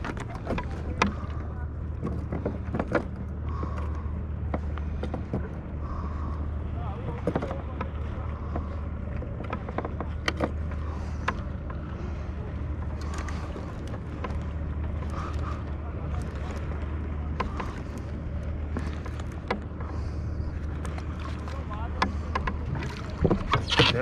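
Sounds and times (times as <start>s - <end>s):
steady low rumble: 0.0s - 24.0s
water lapping against plastic hull: 0.0s - 24.0s
small clicks and knocks: 7.2s - 10.6s.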